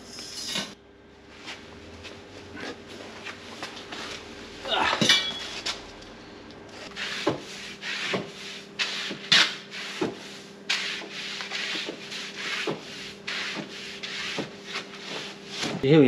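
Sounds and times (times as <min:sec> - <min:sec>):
mop swishing on floor: 0:06.8 - 0:15.8.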